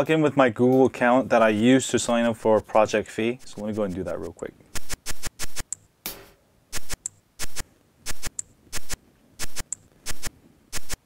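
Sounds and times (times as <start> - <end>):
sharp clicks: 3.4 - 5.9, 6.7 - 11.0.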